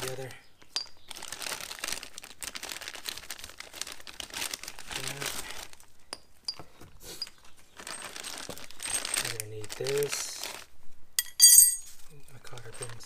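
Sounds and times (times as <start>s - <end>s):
plastic bags crinkling: 1.0s - 6.0s, 7.2s - 10.7s
small metal hardware clinks: 11.2s - 12.0s.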